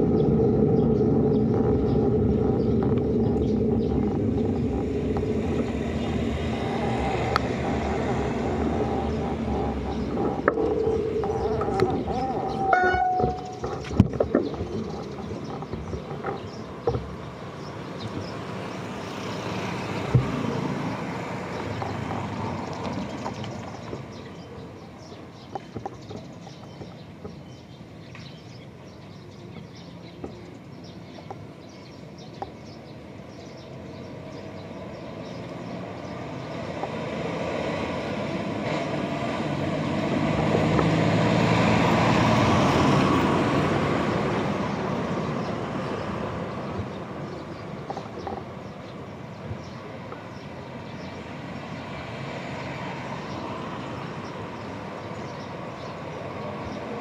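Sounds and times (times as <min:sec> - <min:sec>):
vehicle engine approaching: 0:00.0 - 0:26.8, 0:33.0 - 0:57.0
road traffic rumbling: 0:00.0 - 0:57.0
small knocks: 0:07.3 - 0:17.2.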